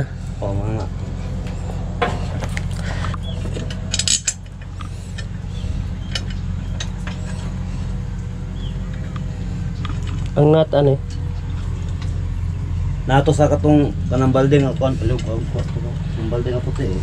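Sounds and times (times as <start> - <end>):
steady low hum: 0.0 - 17.0
metallic clatter: 0.6 - 10.4
metal parts clinking and scraping: 1.2 - 7.6.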